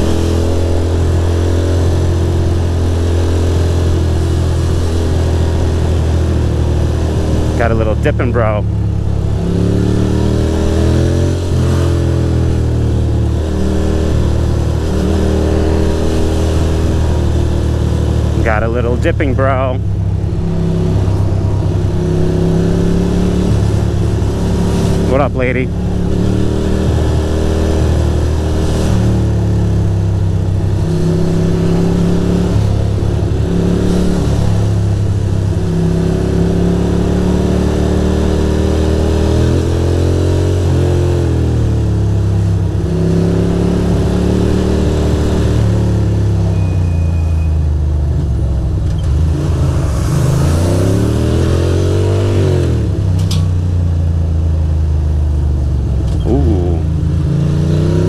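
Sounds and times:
motorcycle engine running: 0.0s - 37.3s, 52.9s - 58.0s.

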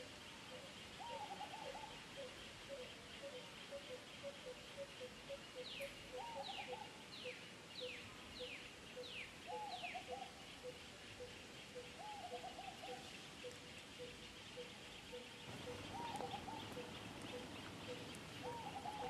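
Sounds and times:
faint insect hum: 0.0s - 19.0s
bird chattering: 15.5s - 19.0s
birds whistling: 15.5s - 19.0s.

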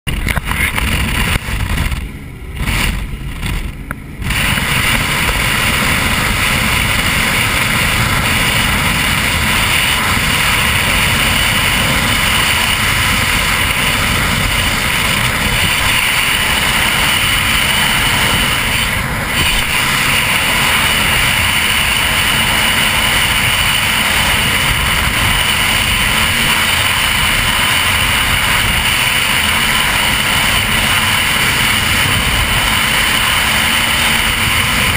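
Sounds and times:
powerboat engine rushing: 0.1s - 34.9s
wind on microphone: 0.1s - 34.9s.

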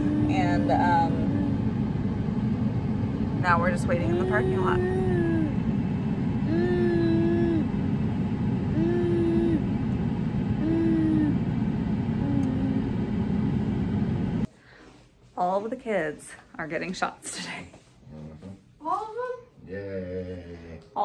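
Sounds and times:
soft hummed note: 12.1s - 13.8s.

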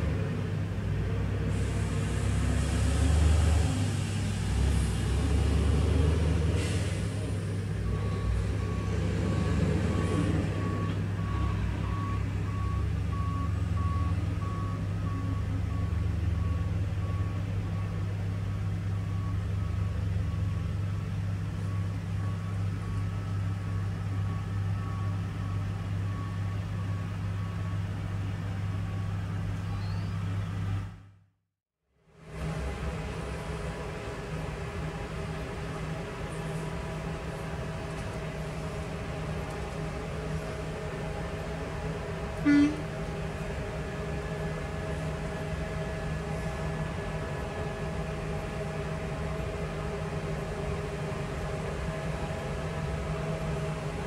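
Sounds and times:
diesel truck engine rumble: 0.0s - 31.1s, 32.2s - 54.0s
reversing alarm beeping: 7.8s - 18.1s, 18.9s - 20.6s, 21.6s - 27.9s.

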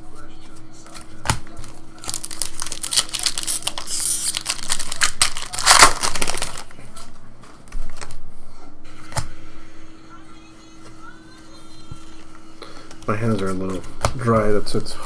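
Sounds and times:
foil wrapper tearing and crinkling: 2.0s - 6.8s.

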